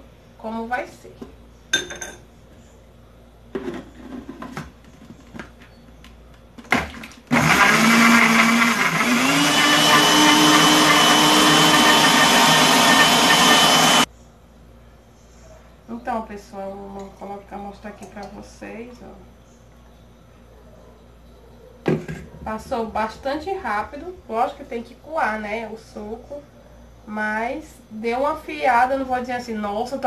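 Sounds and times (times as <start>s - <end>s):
blender motor whirring: 7.3s - 14.1s.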